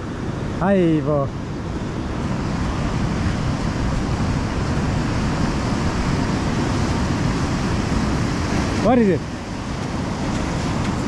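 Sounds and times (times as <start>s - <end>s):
ocean surf rushing: 0.0s - 11.0s.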